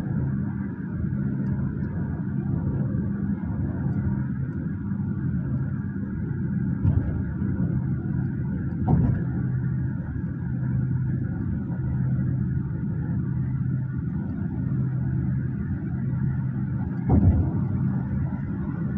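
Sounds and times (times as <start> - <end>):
faint hum: 0.0 - 18.9
road and engine rumble: 0.0 - 18.9.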